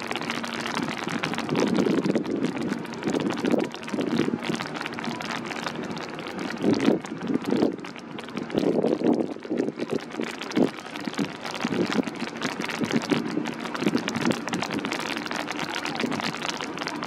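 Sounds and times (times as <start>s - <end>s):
rain falling: 0.0s - 17.0s
wind buffeting microphone: 0.7s - 4.7s, 5.8s - 7.8s, 8.4s - 15.0s.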